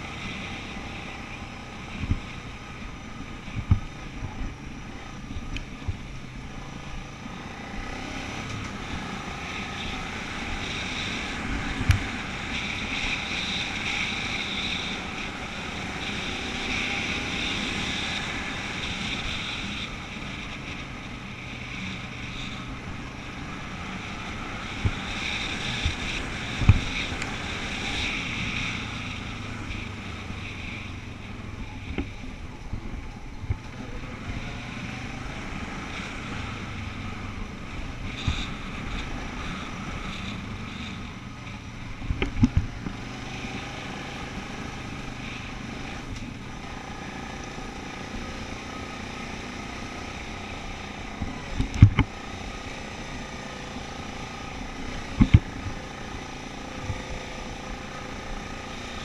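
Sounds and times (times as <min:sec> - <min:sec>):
vehicle driving hum: 0:00.0 - 0:59.0
wind noise on microphone: 0:01.8 - 0:06.6, 0:08.0 - 0:47.4, 0:50.5 - 0:52.4.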